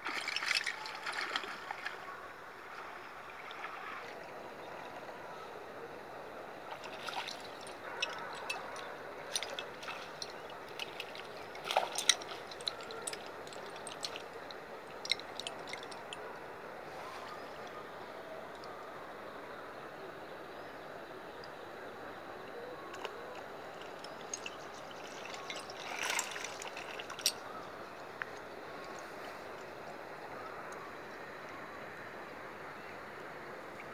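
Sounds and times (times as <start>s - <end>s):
water splashing and dripping: 0.0s - 2.1s, 6.7s - 16.3s, 22.9s - 29.7s.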